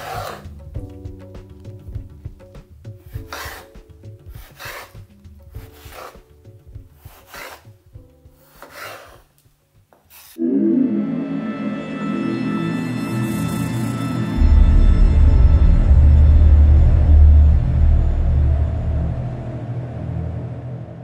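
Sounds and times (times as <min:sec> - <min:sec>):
soft background music: 0:00.0 - 0:21.0
scraping strokes: 0:03.0 - 0:06.3, 0:07.0 - 0:07.8, 0:08.4 - 0:09.3, 0:10.1 - 0:10.4.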